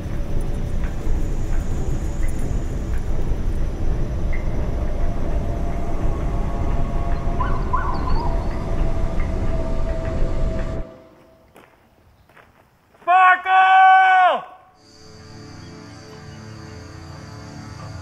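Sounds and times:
dense low rumble: 0:00.0 - 0:11.0.

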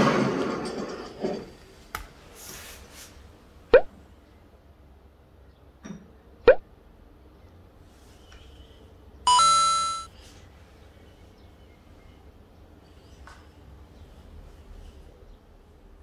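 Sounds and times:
short bright chime: 0:09.3 - 0:10.1.

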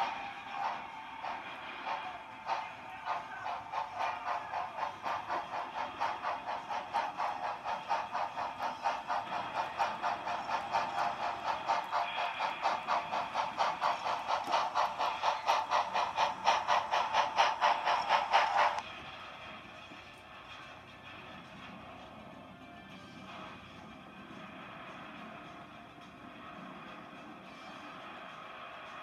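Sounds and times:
model steam locomotive chuffing: 0:00.0 - 0:29.0.

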